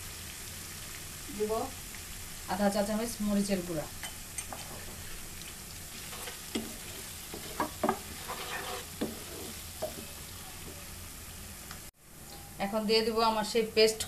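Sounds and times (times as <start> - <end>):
masala sizzling in oil: 0.0 - 14.0
spoon scraping against pan: 6.0 - 10.8.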